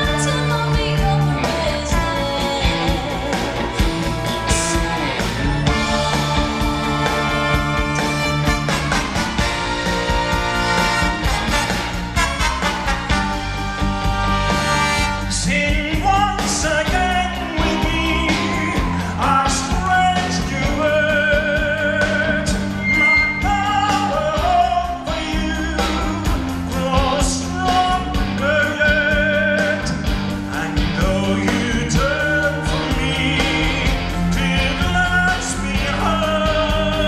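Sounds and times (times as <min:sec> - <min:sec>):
woman singing with vibrato: 0:00.0 - 0:06.1
live rock band: 0:00.0 - 0:37.0.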